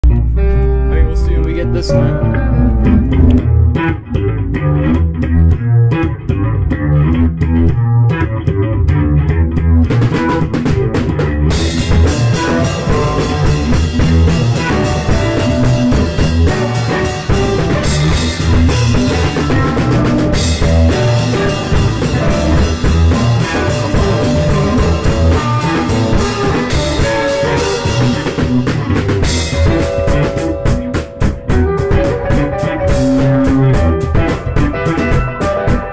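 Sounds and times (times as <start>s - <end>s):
band song with drums and guitar: 0.0s - 35.9s.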